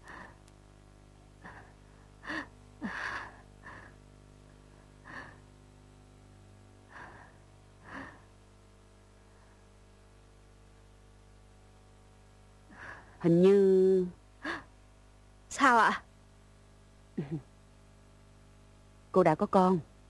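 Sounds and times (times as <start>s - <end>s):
person breathing: 0.0s - 0.5s, 1.4s - 5.7s, 6.8s - 8.5s, 9.1s - 9.8s, 12.7s - 13.3s
faint steady hum: 0.0s - 20.0s.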